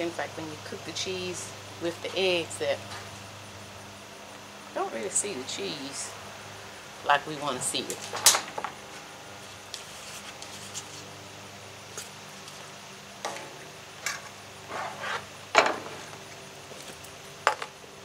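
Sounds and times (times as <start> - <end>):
metal spatula scraping griddle: 14.6 - 15.3.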